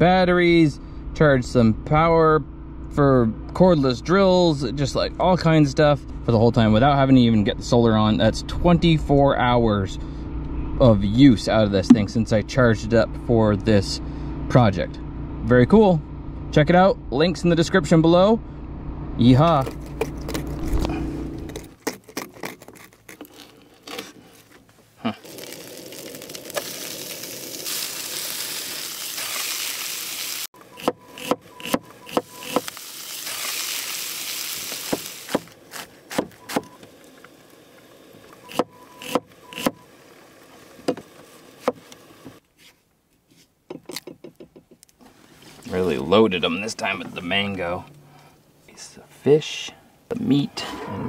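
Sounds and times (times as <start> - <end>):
fish sizzling in oil: 25.2 - 30.5, 32.4 - 35.3
knife chopping on wooden board: 35.3 - 36.7.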